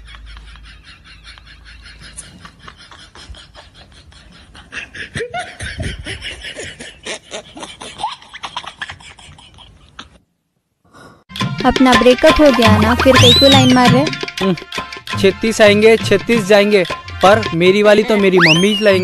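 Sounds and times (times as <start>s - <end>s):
people laughing and snickering: 0.0s - 10.2s.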